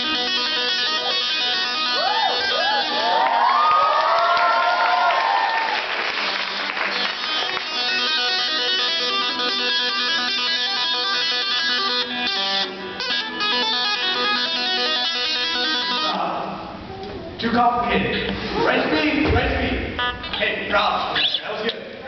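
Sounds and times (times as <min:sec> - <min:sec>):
electric guitar lead: 0:00.0 - 0:03.6, 0:06.2 - 0:17.4.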